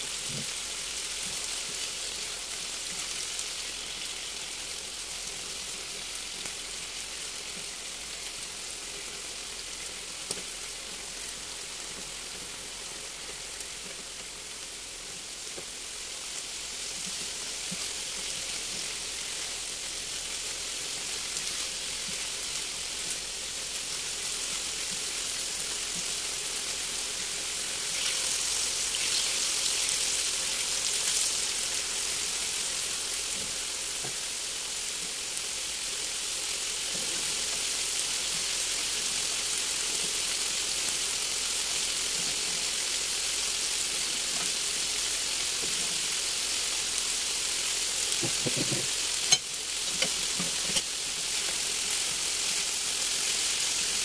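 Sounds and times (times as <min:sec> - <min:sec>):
food sizzling in a pan: 0:00.0 - 0:54.0.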